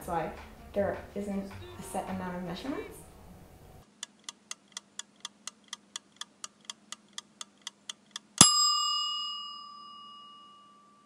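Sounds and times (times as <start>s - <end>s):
kitchen timer ticking: 4.0s - 8.7s
timer bell ding: 8.4s - 11.0s.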